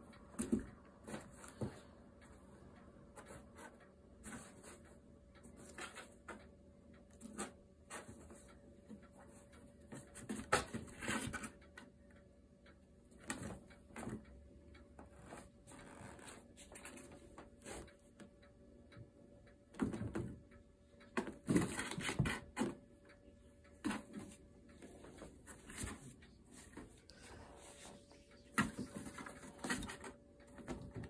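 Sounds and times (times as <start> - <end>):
kittens scratching cardboard box: 21.3 - 22.8.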